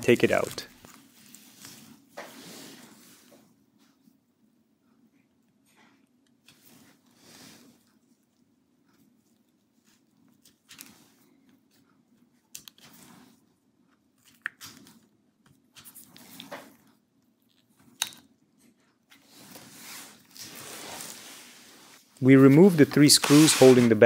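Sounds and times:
tape scraping and crinkling: 19.2 - 24.0.

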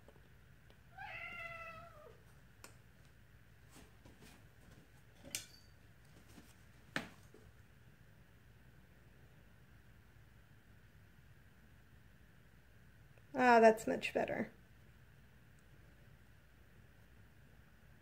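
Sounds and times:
cat meowing: 0.9 - 2.2.

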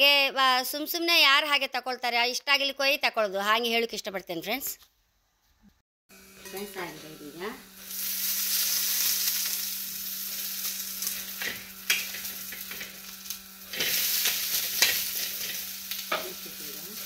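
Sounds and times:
food sizzling in oil: 6.1 - 17.0.

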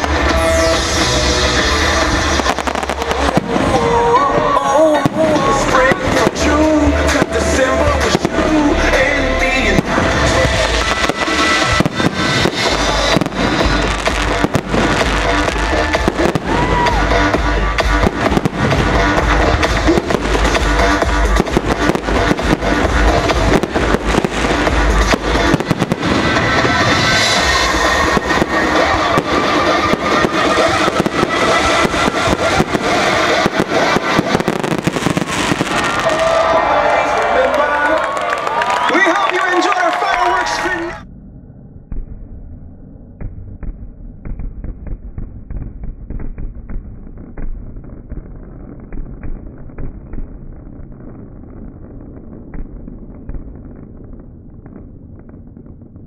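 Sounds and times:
fireworks bangs: 0.0 - 41.0, 43.2 - 56.0
music playing: 0.0 - 41.0.

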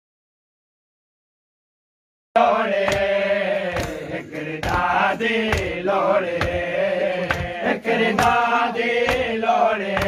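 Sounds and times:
chanted lament: 2.4 - 10.0.

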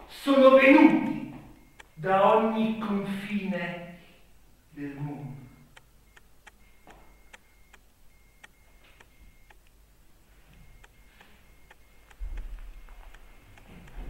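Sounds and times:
faint steady ticking: 1.6 - 2.1, 5.4 - 14.0.

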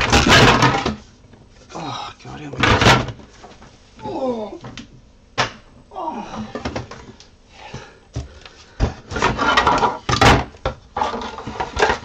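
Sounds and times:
plastic parts clattering: 9.2 - 12.0.

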